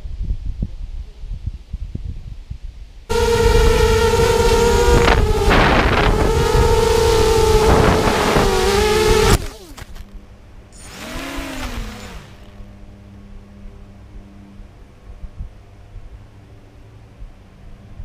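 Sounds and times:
drone motors whining: 3.1s - 10.1s, 10.8s - 12.6s.

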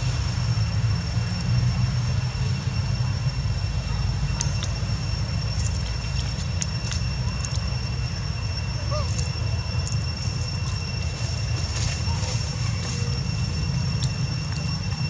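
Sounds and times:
low background rumble: 0.0s - 15.0s
steady high whine: 0.0s - 15.0s
faint ticks: 4.3s - 4.8s.

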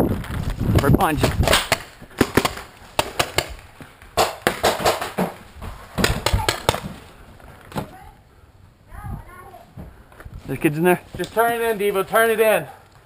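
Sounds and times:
paintball markers firing: 1.1s - 5.2s, 6.0s - 7.0s.

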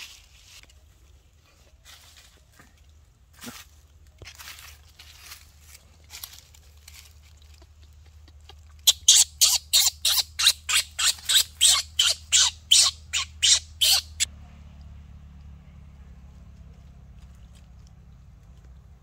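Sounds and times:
quiet rustling: 0.0s - 8.8s
baby monkey screeching: 8.8s - 14.3s.

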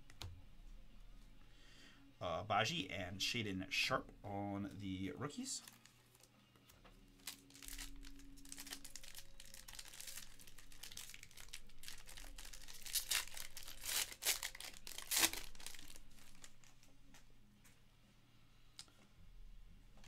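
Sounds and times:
wrapper tearing and crinkling: 5.4s - 6.3s, 7.0s - 16.9s.

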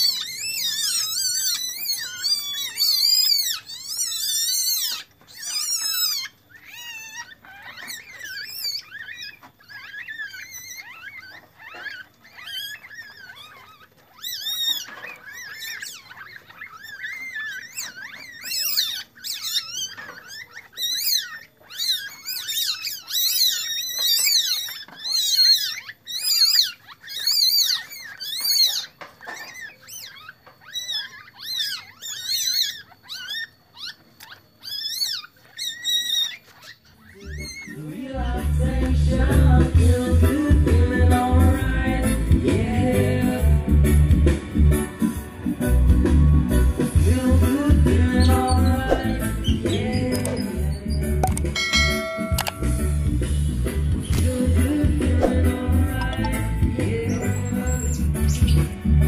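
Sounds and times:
animal young squealing: 0.0s - 38.2s, 46.8s - 53.3s, 53.9s - 58.8s.

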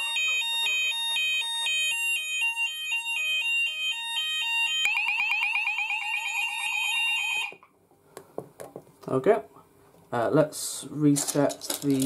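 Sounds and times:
fire alarm sounding: 0.0s - 7.6s.

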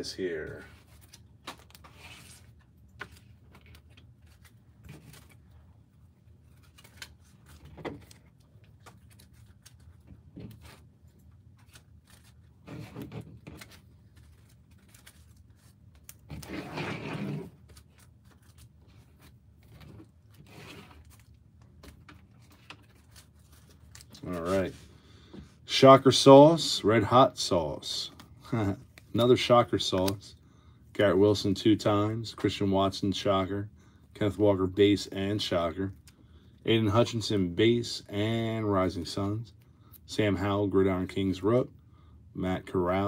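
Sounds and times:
trading cards clicking and rustling: 6.4s - 16.4s, 17.5s - 24.7s, 28.1s - 30.3s.

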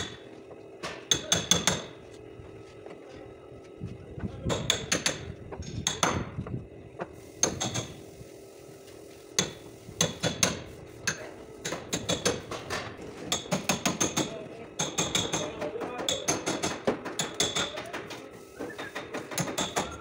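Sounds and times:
hammer striking sheet metal: 9.4s - 18.2s.

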